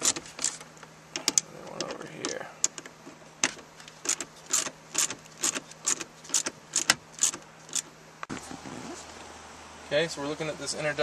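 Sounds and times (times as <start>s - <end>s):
low steady hum: 0.0s - 11.0s
socket ratchet clicking: 2.6s - 7.9s.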